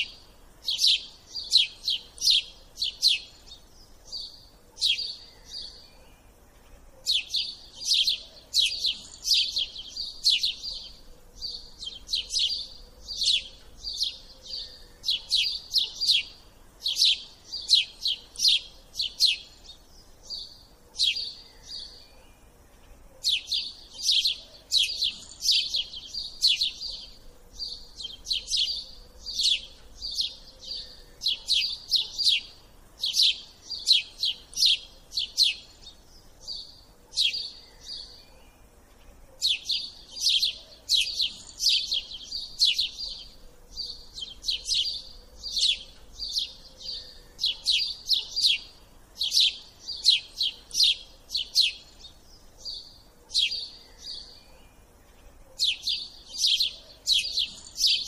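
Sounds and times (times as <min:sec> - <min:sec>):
small bird chirping: 0:00.0 - 0:58.0.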